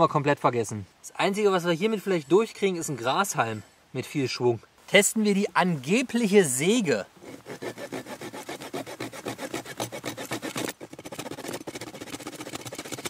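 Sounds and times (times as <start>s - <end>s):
saw rasping across branch: 7.2s - 13.0s.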